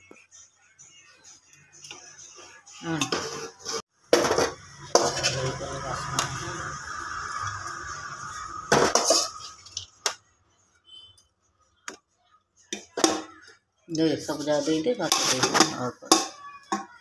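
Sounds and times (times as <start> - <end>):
metal spoon scraping a steel pot: 2.8 - 7.5, 8.2 - 10.1, 14.3 - 16.9.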